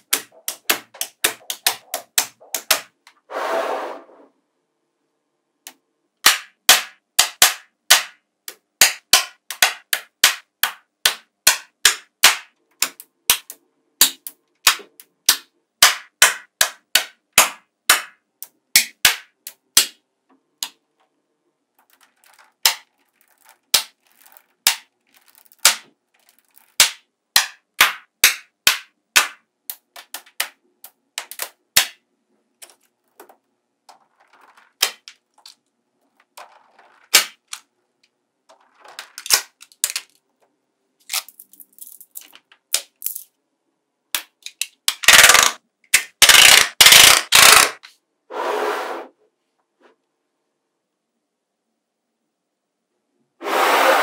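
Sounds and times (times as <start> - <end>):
magnetic balls clicking: 0.0 - 3.2, 21.7 - 32.0, 32.6 - 40.2, 44.2 - 47.8
soft scraping: 3.2 - 4.4
clatter of balls: 21.7 - 26.8, 32.6 - 37.7, 38.4 - 40.3, 41.2 - 43.4.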